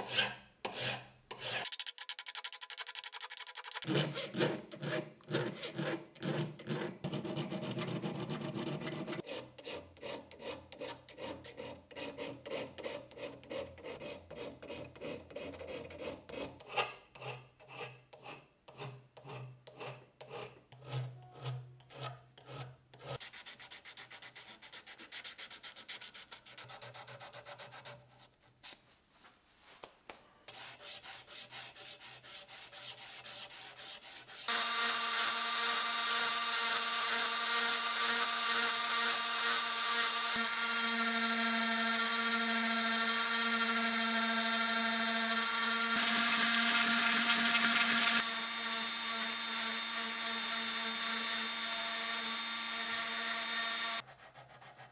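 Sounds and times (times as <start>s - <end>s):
hand file rasping on steel: 0.0s - 28.3s, 30.5s - 34.5s.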